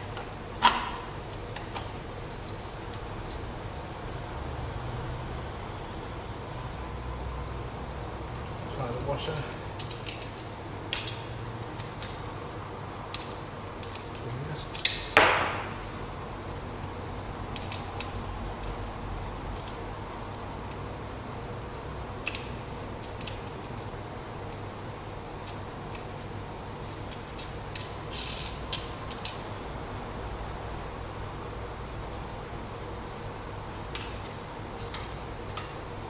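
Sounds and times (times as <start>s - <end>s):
small metal clicks and taps: 9.4s - 20.9s.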